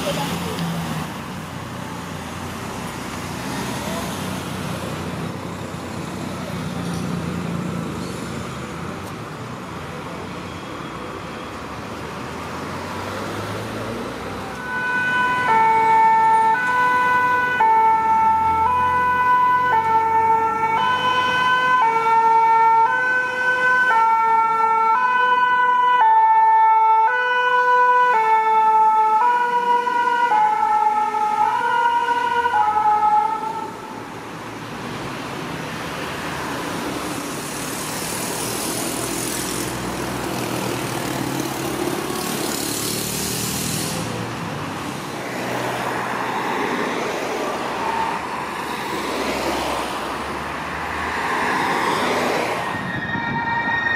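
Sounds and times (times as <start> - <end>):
road traffic: 0.0 - 53.9
two-tone fire siren: 14.5 - 34.0, 47.4 - 48.4, 51.9 - 53.9.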